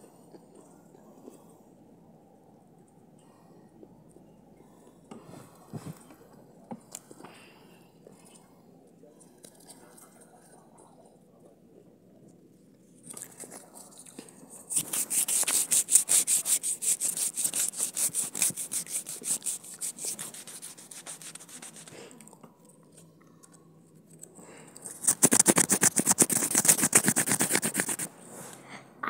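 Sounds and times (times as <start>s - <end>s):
hand rubbing near microphone: 14.7s - 22.0s, 25.0s - 28.4s.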